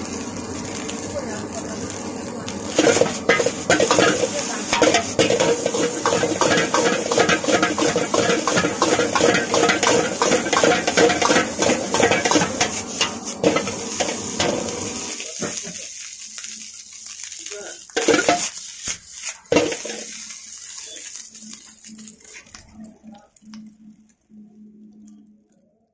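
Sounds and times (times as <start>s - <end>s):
food sizzling: 0.0s - 25.8s
ladle clattering in wok: 2.8s - 14.6s, 18.0s - 18.5s, 19.5s - 20.1s.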